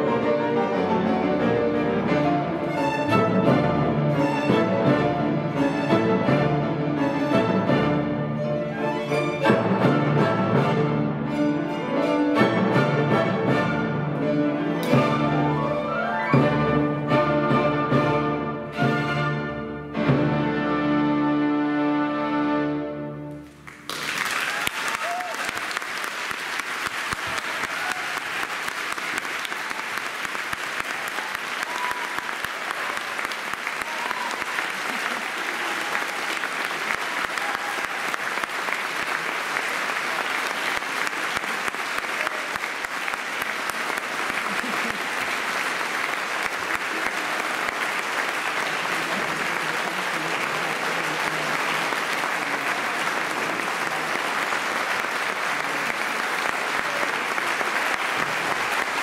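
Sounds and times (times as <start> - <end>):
audience applauding: 23.4 - 59.0.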